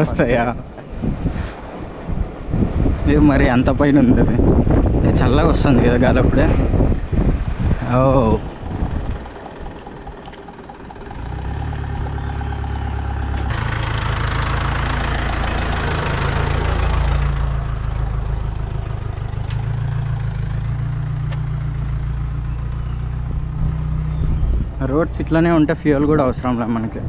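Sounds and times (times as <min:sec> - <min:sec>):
wind noise rushing: 0:00.0 - 0:10.2
vehicle engine hum: 0:00.0 - 0:27.0.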